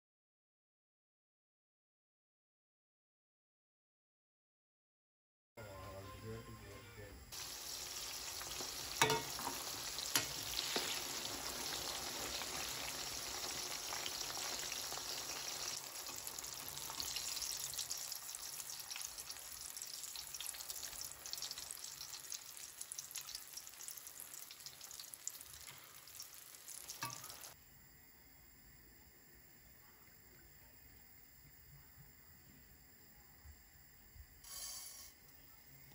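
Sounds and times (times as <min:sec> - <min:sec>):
eggplant sizzling in hot oil: 0:07.3 - 0:27.6.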